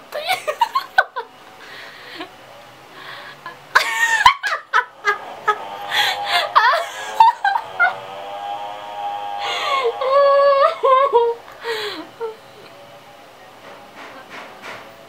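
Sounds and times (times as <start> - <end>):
woman laughing hard: 0.1 - 1.3, 3.4 - 8.1, 9.4 - 12.4.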